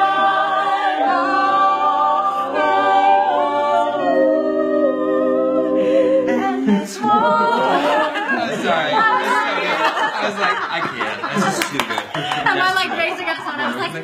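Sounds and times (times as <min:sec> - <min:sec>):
mixed voices singing a cappella: 0:00.0 - 0:10.7.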